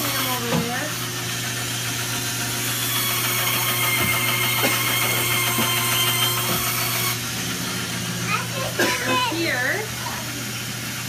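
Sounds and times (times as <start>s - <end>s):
woodworking saw whining: 0.0s - 8.1s.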